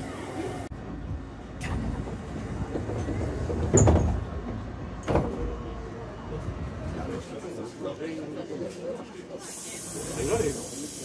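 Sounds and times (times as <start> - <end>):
train interior rumble: 0.0 - 7.7.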